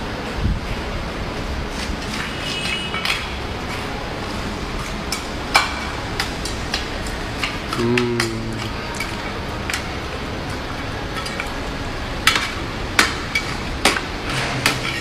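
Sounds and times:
steady background noise: 0.0s - 15.0s
dishes and utensils clinking: 2.0s - 3.8s, 7.0s - 11.6s, 12.2s - 15.0s.

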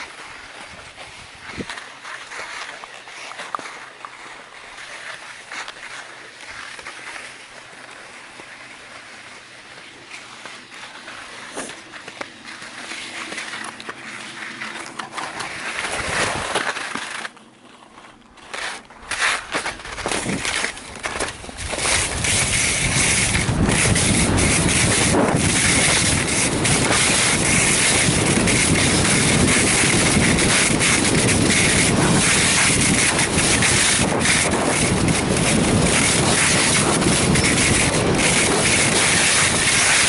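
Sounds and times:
wind buffeting microphone: 21.2s - 40.0s.

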